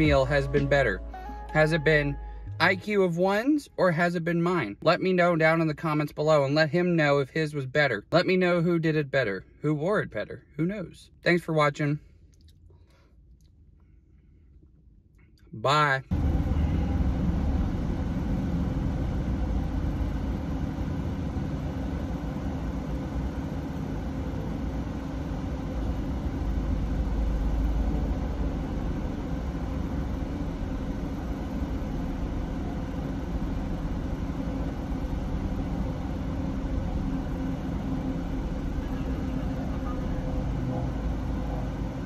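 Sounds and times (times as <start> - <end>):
car engine idling: 0.0 - 5.9, 16.1 - 42.0.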